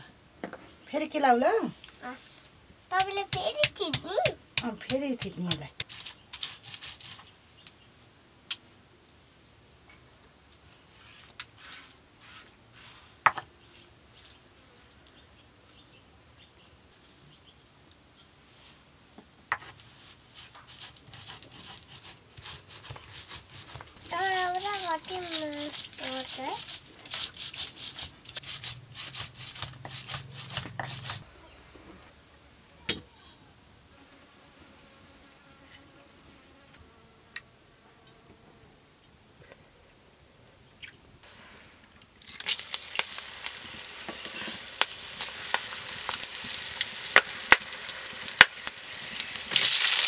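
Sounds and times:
stone pestle scraping in mortar: 20.3 - 31.2.

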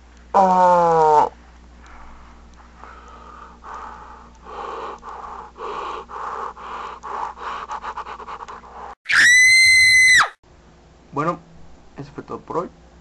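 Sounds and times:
heavy breathing through a mask: 1.8 - 9.0.

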